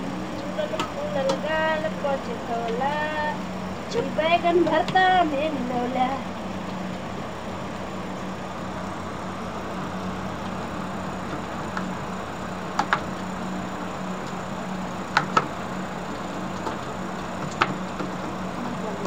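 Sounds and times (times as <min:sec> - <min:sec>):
machine hum: 0:00.0 - 0:19.0.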